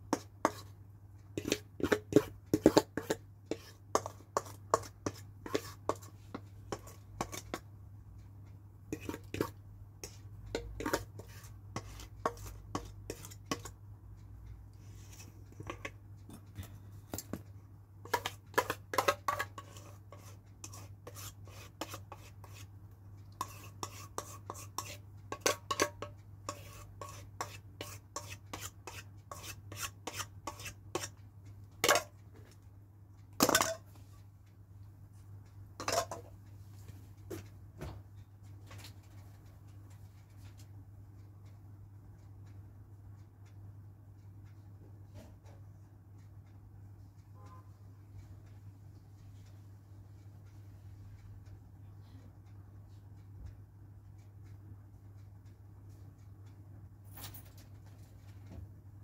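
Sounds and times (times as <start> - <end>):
spatula clinking on steel bowl: 1.4 - 6.1, 8.9 - 13.8, 18.1 - 22.6, 23.4 - 31.1, 33.4 - 33.9.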